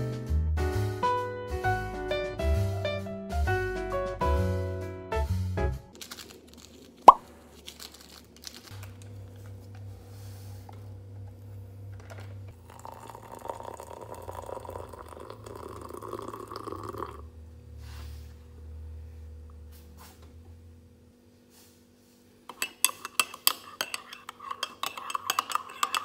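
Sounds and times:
liquid pouring into ceramic mug: 12.5 - 17.2.

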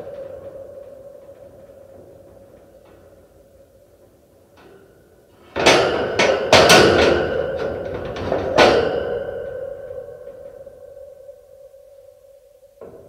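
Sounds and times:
metal cage rattling: 5.5 - 10.7.

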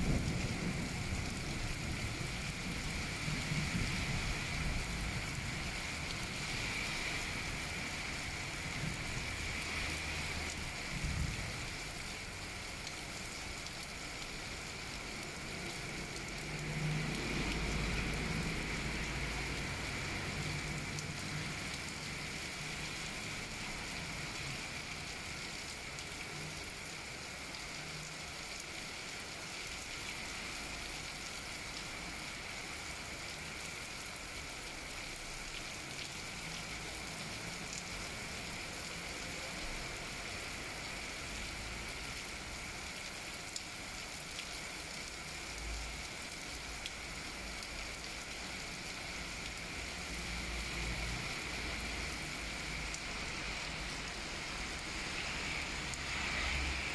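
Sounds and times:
rain hiss: 0.0 - 56.9.

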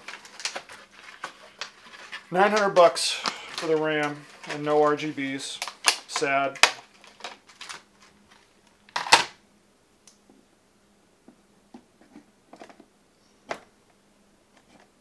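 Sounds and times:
plastic packaging rustling: 0.0 - 9.3.

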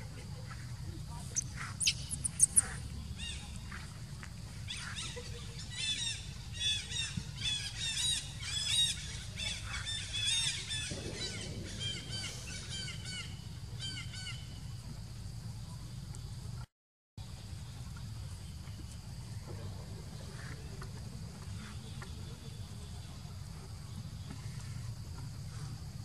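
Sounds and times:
sharp squeaks: 1.3 - 2.8.

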